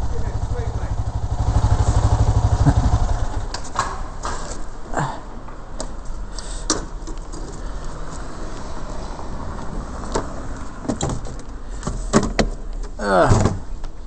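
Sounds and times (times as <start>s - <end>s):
motorcycle engine running: 0.0s - 3.5s.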